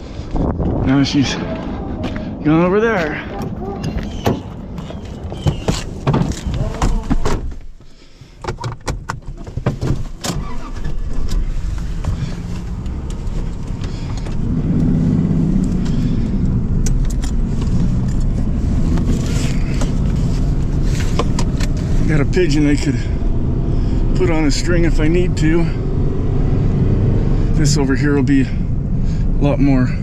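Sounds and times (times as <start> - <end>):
clicks and rattles in cab: 3.3 - 14.4, 19.0 - 21.9.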